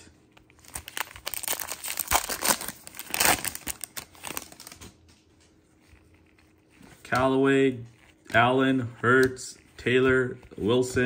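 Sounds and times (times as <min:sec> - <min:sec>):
foil wrapper crinkling and tearing: 0:00.4 - 0:05.0.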